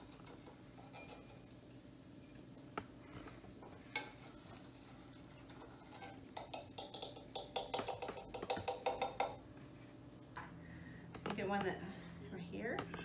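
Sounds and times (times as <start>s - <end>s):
metal spoon clinking on pot: 0.1s - 1.5s, 5.3s - 9.4s.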